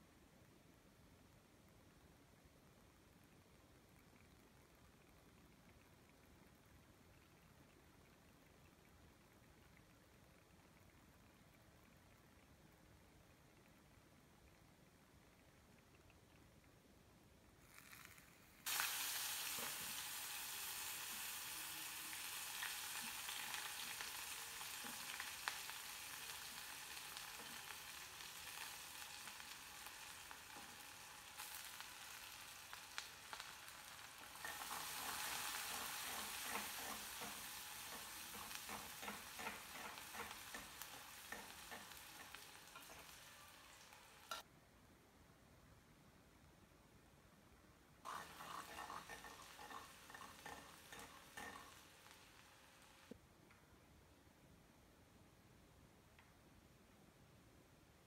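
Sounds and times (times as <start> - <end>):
onions sizzling in hot oil: 17.7 - 44.4, 48.0 - 53.2
spatula scraping in pan: 33.4 - 44.4, 48.1 - 52.2.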